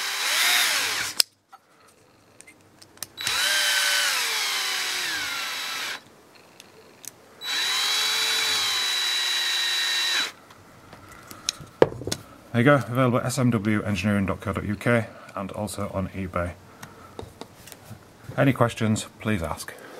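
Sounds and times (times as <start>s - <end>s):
cordless drill whining: 0.0s - 1.2s, 3.2s - 6.6s, 7.4s - 10.4s.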